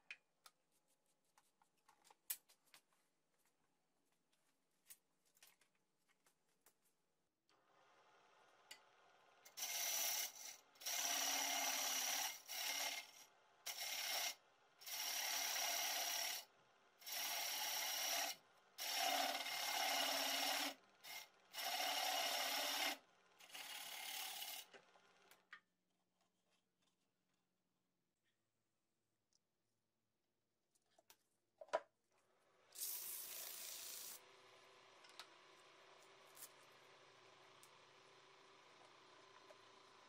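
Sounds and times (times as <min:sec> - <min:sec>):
tool rasping on spinning wood: 0:09.6 - 0:16.4, 0:17.0 - 0:24.7.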